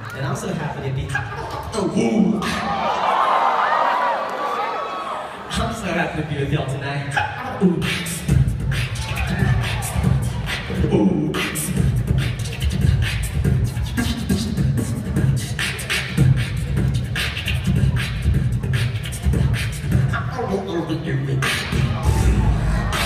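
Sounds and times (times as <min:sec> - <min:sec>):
beatboxing through a microphone: 0:00.0 - 0:02.8, 0:05.5 - 0:23.0.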